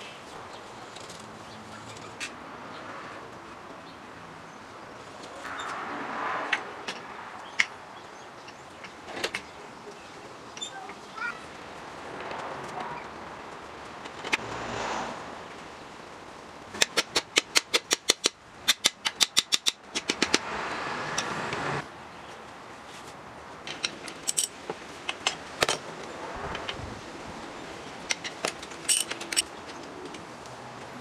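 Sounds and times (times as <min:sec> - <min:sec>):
handling and rustling noises: 0:22.3 - 0:26.8.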